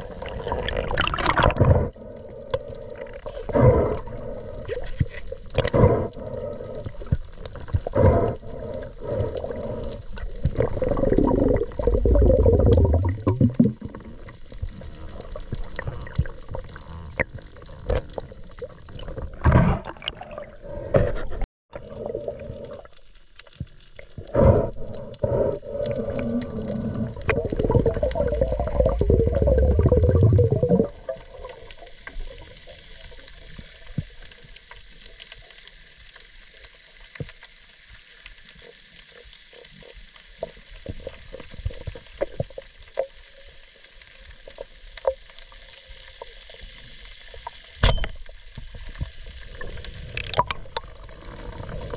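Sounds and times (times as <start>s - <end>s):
muffled underwater gurgling: 0.0s - 22.9s, 24.2s - 32.8s.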